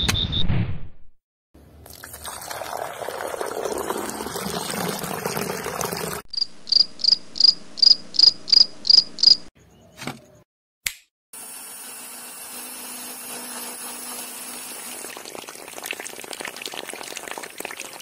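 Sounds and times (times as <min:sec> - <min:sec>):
water pouring into a pool: 0:01.8 - 0:06.3, 0:14.5 - 0:18.0
cricket chirping: 0:06.3 - 0:09.5.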